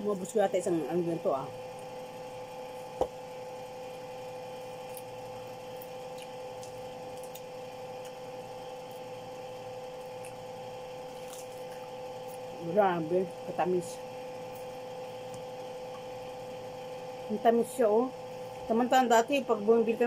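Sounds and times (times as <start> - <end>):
machine hum: 0.0 - 20.0
person chewing: 4.8 - 9.2, 9.9 - 12.6.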